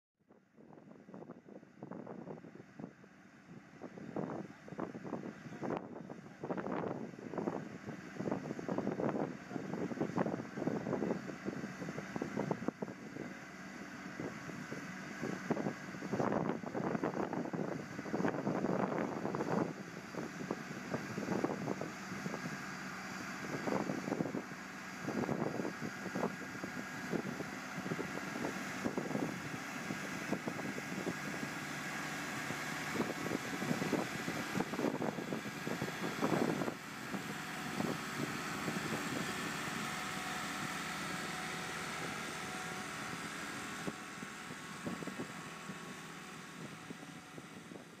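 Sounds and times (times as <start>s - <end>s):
diesel engines running: 0.6s - 48.0s
wind buffeting microphone: 14.2s - 48.0s.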